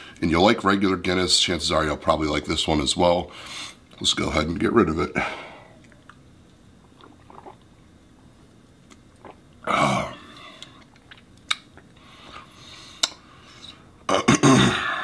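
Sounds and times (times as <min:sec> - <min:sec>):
man exhaling: 0:14.7 - 0:15.0.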